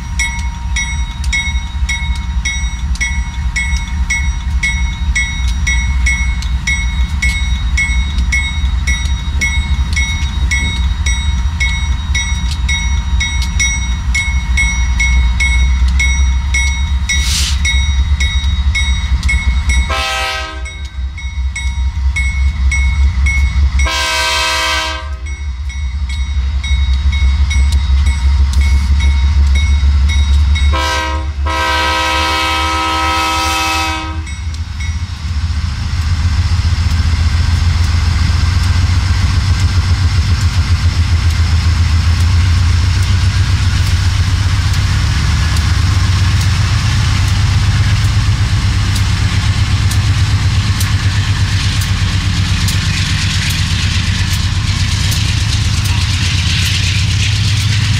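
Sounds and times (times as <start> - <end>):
crossing bell ringing: 0.0 - 35.4
diesel locomotive running: 0.0 - 57.9
train air horn blasts: 19.9 - 20.8, 23.8 - 25.3, 30.7 - 34.4.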